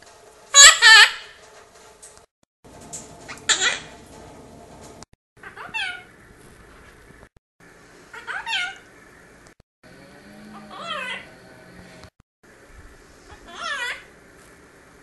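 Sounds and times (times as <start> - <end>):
parrot calls falling in pitch: 0.6 - 1.3.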